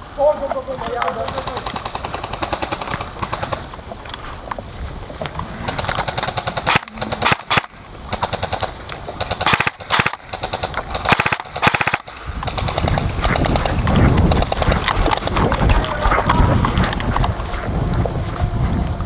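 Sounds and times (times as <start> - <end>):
airsoft guns firing bursts: 0.9 - 3.8, 5.7 - 15.5.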